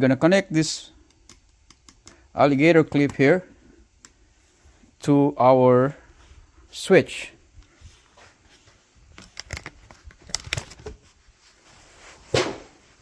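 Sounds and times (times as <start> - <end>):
handling clicks and knocks: 9.1 - 11.0.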